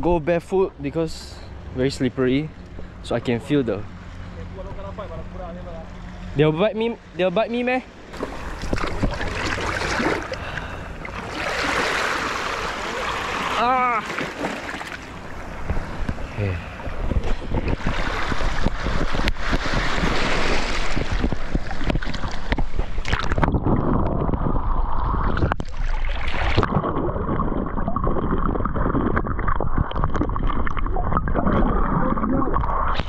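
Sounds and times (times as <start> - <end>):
sea water splashing over rocks: 8.2 - 15.9, 17.4 - 32.9
low underwater rumble: 20.8 - 33.0.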